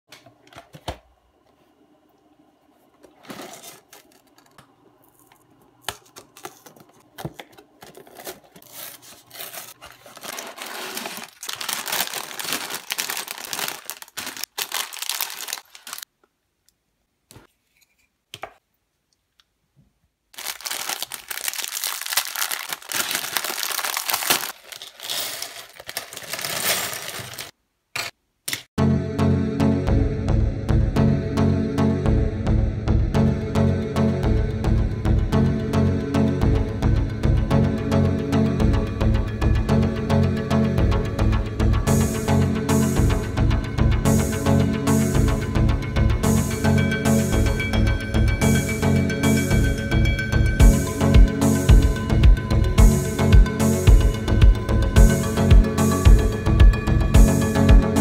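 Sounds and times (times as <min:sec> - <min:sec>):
plastic bags crinkling: 0:03.1 - 0:05.3, 0:05.9 - 0:16.1, 0:20.3 - 0:27.6
plastic pieces rattling onto table: 0:09.5 - 0:16.0, 0:20.4 - 0:28.1.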